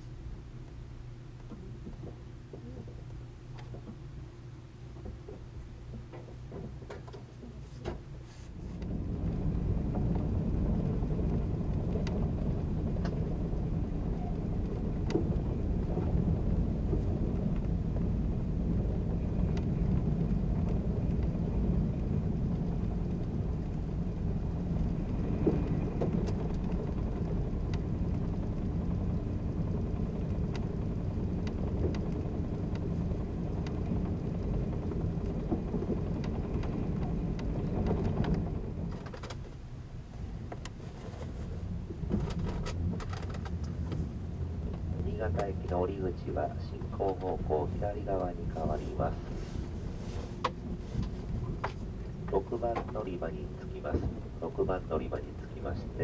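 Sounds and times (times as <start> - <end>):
train wheels and motors rumbling: 0.0 - 56.0
ticks in standing train: 8.8 - 39.6, 44.7 - 49.2.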